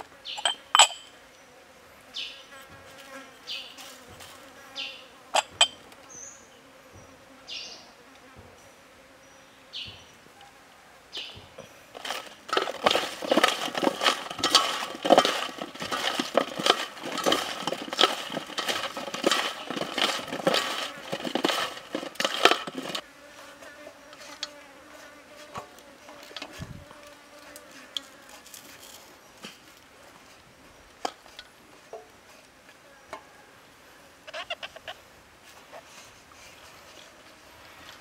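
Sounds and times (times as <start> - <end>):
food rattling on metal tray: 12.0 - 23.0.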